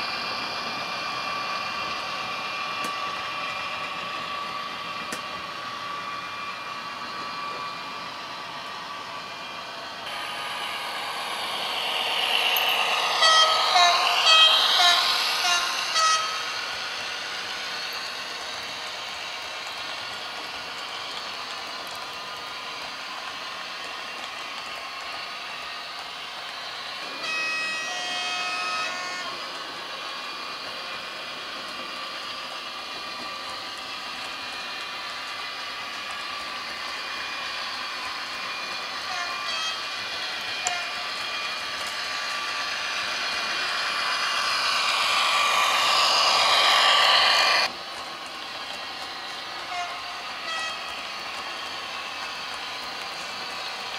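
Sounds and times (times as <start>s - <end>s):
model train running sound: 0.0s - 53.9s
model train horn: 13.2s - 16.5s, 27.2s - 29.4s, 39.0s - 39.9s, 40.6s - 41.0s, 49.6s - 51.0s
two-pitch horn toots: 13.2s - 16.5s.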